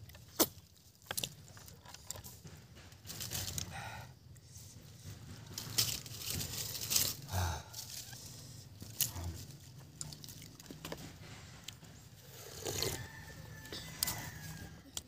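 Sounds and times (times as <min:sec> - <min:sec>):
people chewing and lip-smacking: 0:00.0 - 0:04.6, 0:07.7 - 0:15.0.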